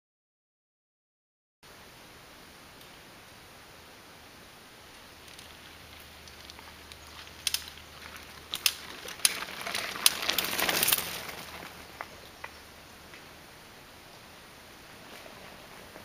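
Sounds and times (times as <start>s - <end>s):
bike tyres rumbling on wooden planks: 5.2s - 12.6s
planks and bike clacking: 5.2s - 12.6s.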